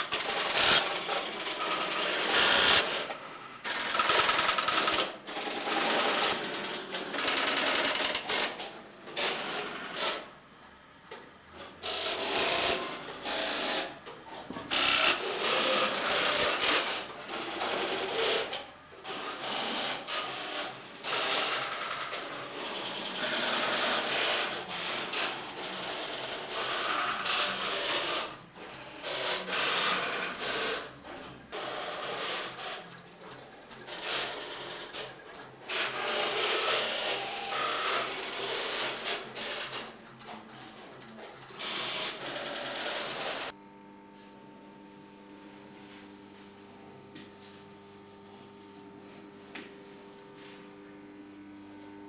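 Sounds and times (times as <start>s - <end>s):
telephone exchange relays clattering: 19.3s - 36.2s.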